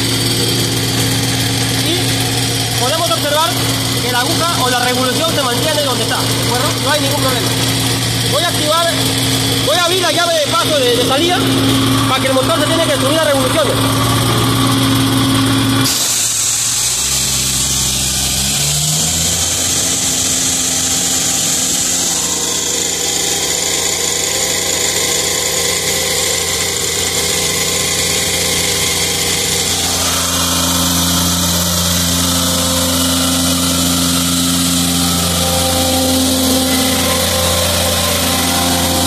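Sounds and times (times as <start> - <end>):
diesel engine speeding up: 0.0 - 39.0
compressed air hissing: 15.8 - 18.6, 28.6 - 39.0.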